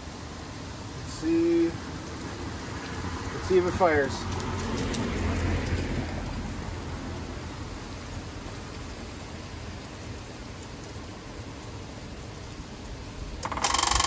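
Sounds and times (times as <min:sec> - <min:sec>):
diesel generator cranking: 0:13.4 - 0:14.0.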